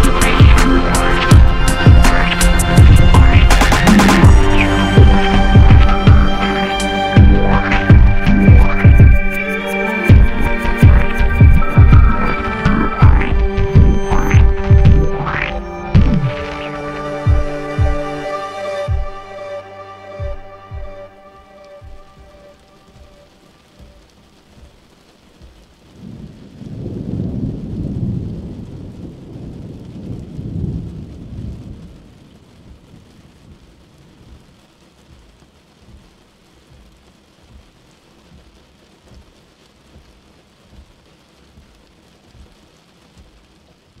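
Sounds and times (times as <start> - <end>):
steady rain: 0.0 - 44.0
rolling thunder: 25.9 - 34.4.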